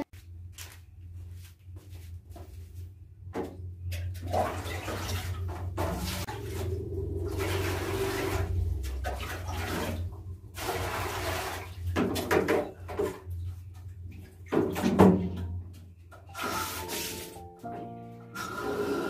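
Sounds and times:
water splashing from dipper into basin: 4.1 - 13.2
background music: 16.2 - 19.0.

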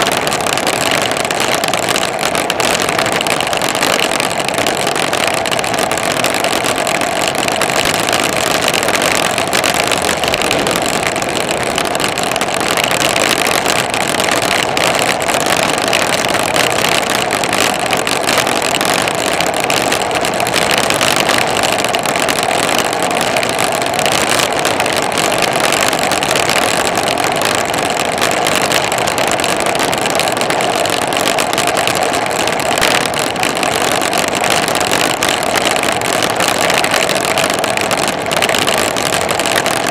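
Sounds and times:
tyre noise on asphalt: 0.0 - 39.9
rushing wind: 5.3 - 18.3.

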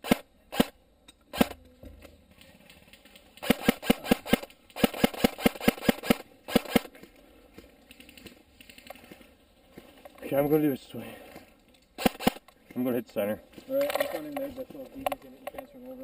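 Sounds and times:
airsoft rifle shots clacking: 0.0 - 1.6, 3.4 - 7.1, 12.0 - 12.6.

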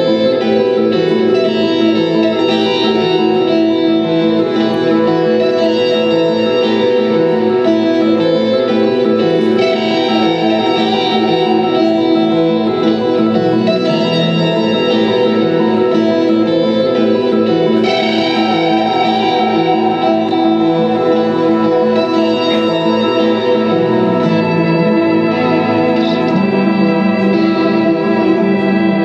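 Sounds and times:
electric guitar sustained notes: 0.0 - 29.0.

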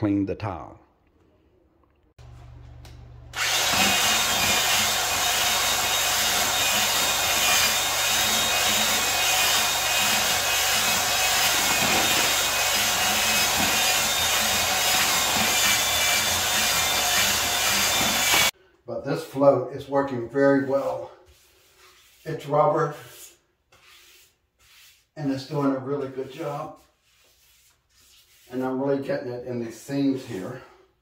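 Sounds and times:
electric drill mixing in bucket: 3.3 - 18.5.

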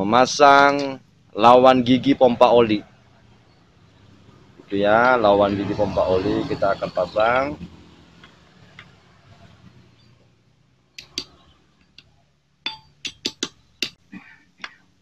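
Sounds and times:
steel rod tapping metal parts: 11.0 - 14.8.

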